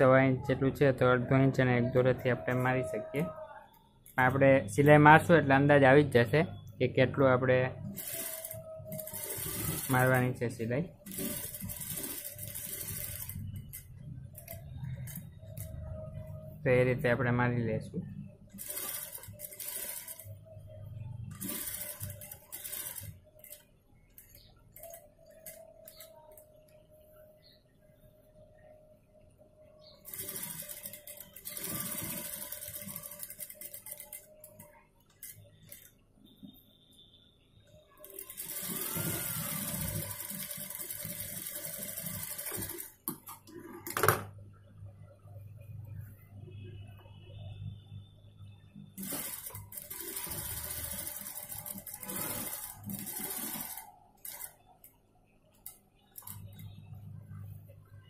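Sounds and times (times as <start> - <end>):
sewing machine stitching: 7.8 - 16.5, 18.5 - 26.4, 29.9 - 35.9, 38.0 - 44.2, 49.0 - 54.8.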